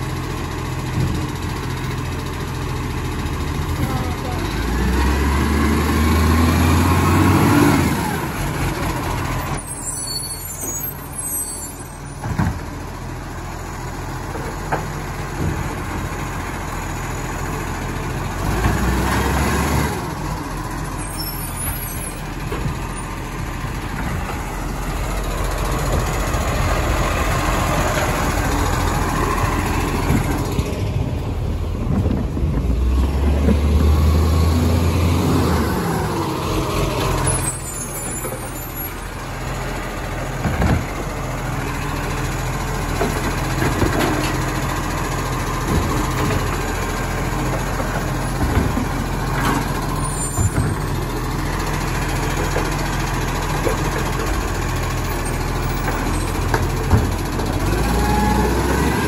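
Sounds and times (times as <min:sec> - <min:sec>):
garbage truck diesel engine revving: 0:00.0 - 0:10.5, 0:12.6 - 0:59.0.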